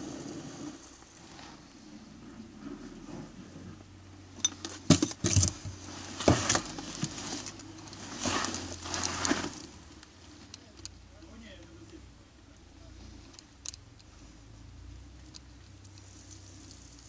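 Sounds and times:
hand tool knocking wooden boards: 0:04.8 - 0:05.6.

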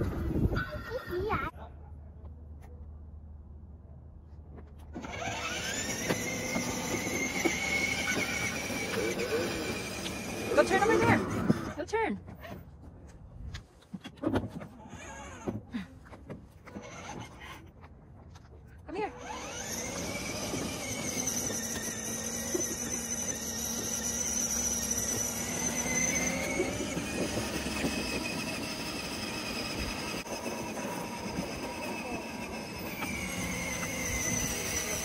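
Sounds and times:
plastic wheels rolling on road: 0:04.9 - 0:12.0, 0:19.2 - 0:35.0
electric motor whine: 0:05.0 - 0:11.8, 0:19.2 - 0:35.0.

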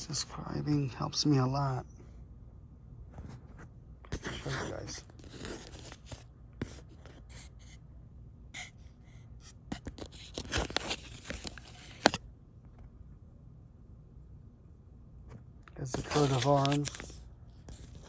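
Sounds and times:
handling scrapes and rustles: 0:03.1 - 0:07.8, 0:09.5 - 0:12.2, 0:15.8 - 0:18.0.

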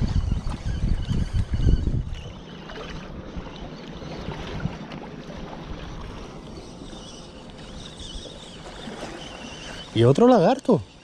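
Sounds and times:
fishing reel whirring: 0:00.0 - 0:04.5, 0:05.3 - 0:11.0
wind on microphone: 0:00.0 - 0:07.0
water lapping against rocks: 0:00.0 - 0:10.6.

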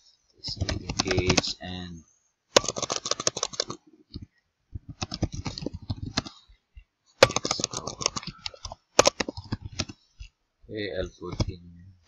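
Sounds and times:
computer keyboard typing: 0:00.5 - 0:01.5, 0:02.6 - 0:06.4, 0:07.2 - 0:10.3, 0:11.2 - 0:11.6.

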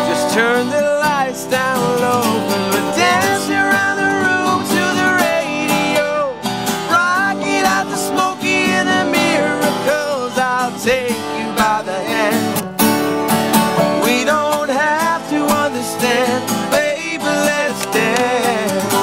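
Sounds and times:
acoustic guitars strumming: 0:00.0 - 0:19.0
slide guitar melody: 0:00.0 - 0:19.0.

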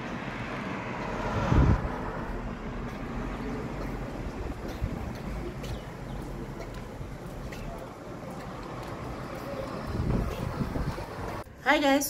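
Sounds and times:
car driving past: 0:00.0 - 0:11.4
wind rumbling on microphone: 0:01.1 - 0:02.8, 0:09.7 - 0:11.4.

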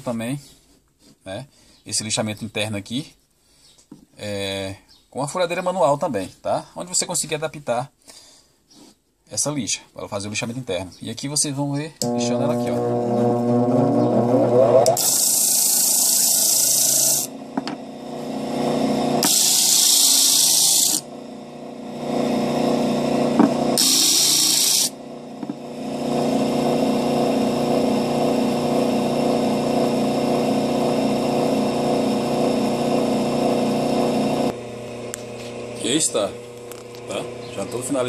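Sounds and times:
disc sander motor humming: 0:12.0 - 0:38.0
loud sanding hiss: 0:19.2 - 0:21.1, 0:23.8 - 0:24.9.

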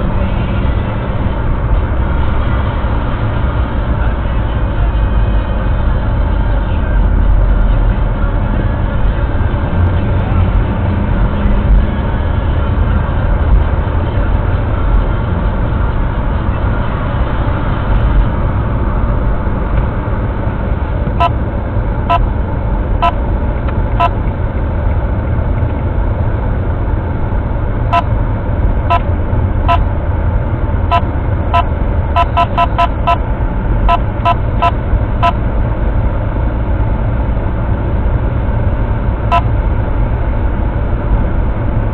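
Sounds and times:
car road and engine noise: 0:00.0 - 0:41.9.

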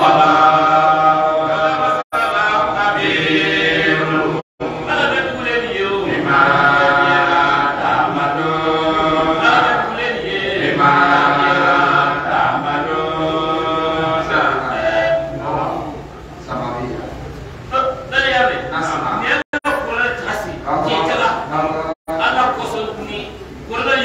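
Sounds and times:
men chanting into microphones: 0:00.0 - 0:16.9.

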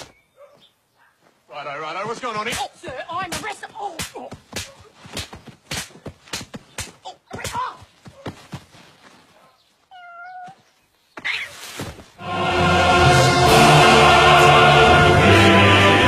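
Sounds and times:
thuds and slaps of scuffle: 0:02.4 - 0:08.7, 0:11.6 - 0:12.1.

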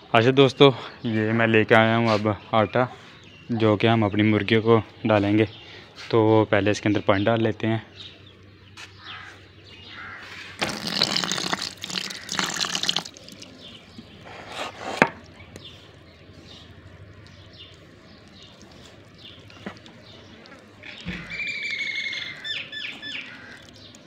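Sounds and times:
water splash: 0:10.6 - 0:13.6
water pouring into steel bowl: 0:10.6 - 0:13.7.

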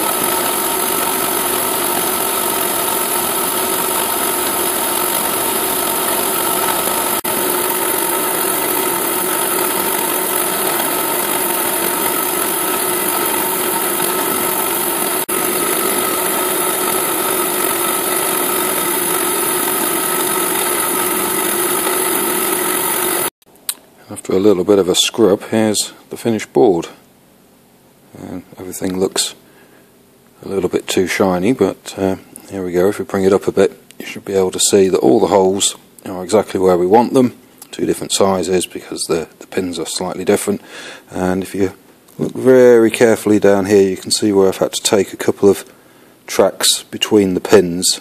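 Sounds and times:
milling machine humming: 0:00.0 - 0:23.3.

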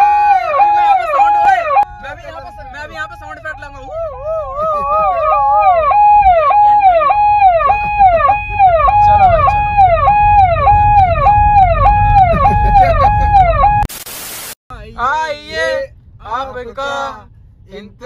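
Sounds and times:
car driving rumble: 0:00.0 - 0:13.9, 0:14.7 - 0:18.0
electronic siren wailing: 0:05.0 - 0:13.9.

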